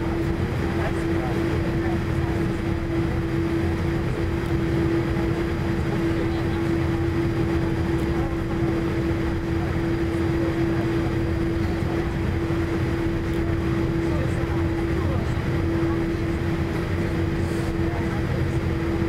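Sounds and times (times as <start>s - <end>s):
aircraft cabin rumble: 0.0s - 19.0s
droning engine hum: 0.0s - 19.0s.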